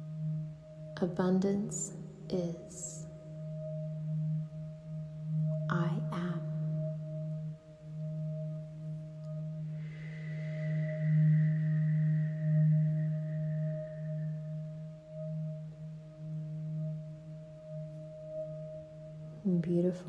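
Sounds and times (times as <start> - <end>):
low sustained drone: 0.0 - 20.0
soft held tones: 0.0 - 20.0
high ringing tone: 5.3 - 19.1.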